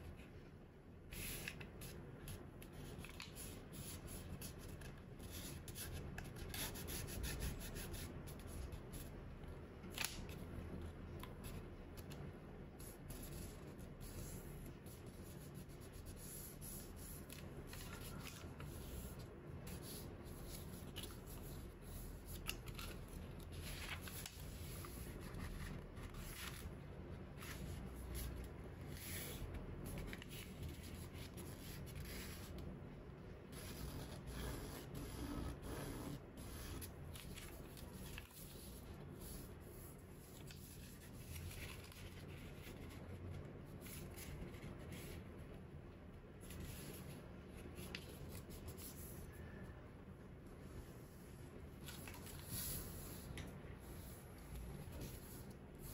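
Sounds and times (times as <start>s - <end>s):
paper rustling and crinkling: 17.2s - 32.4s, 36.7s - 39.4s, 40.2s - 45.2s, 51.8s - 54.0s.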